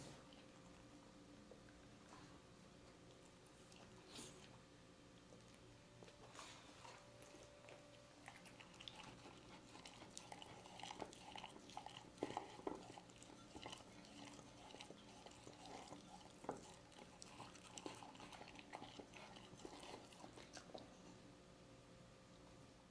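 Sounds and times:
dog licking bowl: 0:06.0 - 0:21.0.

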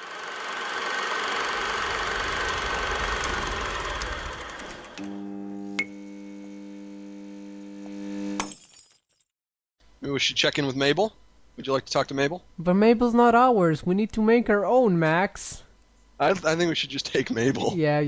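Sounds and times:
film projector whirring: 0:00.0 - 0:06.5.

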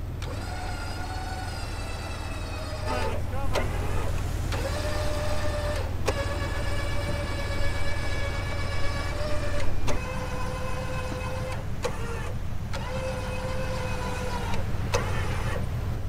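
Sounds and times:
truck engine idling: 0:00.0 - 0:16.0
winch motor whining: 0:00.0 - 0:16.0
sharp winch clicks: 0:00.2 - 0:15.7.

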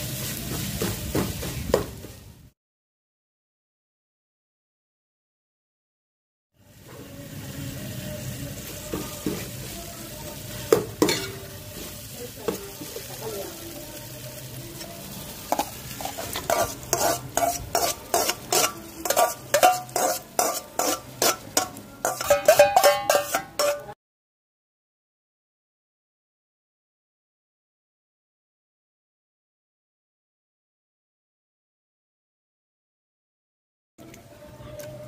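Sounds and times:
onions sizzling in oil: 0:00.0 - 0:02.3, 0:06.6 - 0:24.0
spoon clinking against bowl: 0:15.6 - 0:23.9.

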